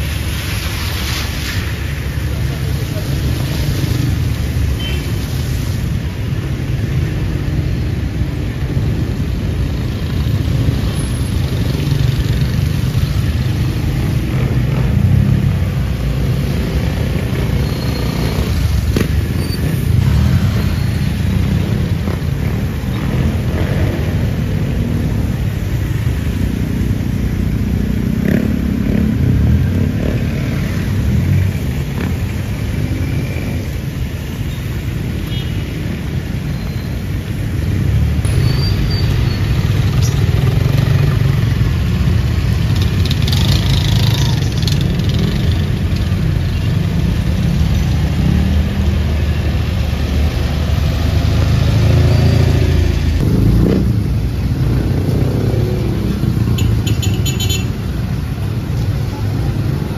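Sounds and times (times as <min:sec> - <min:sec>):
rain hiss: 0:00.0 - 0:28.0
traffic passing: 0:00.0 - 0:59.9.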